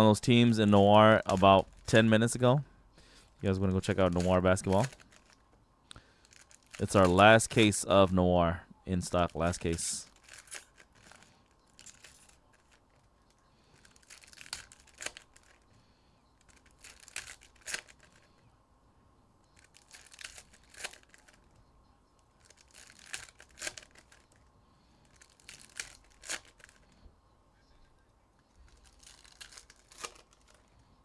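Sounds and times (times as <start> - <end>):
foil wrapper tearing and crinkling: 6.2 - 7.3, 10.1 - 12.8, 13.8 - 15.6, 16.5 - 18.1, 19.6 - 21.4, 22.4 - 24.3, 25.1 - 26.8, 28.6 - 30.7.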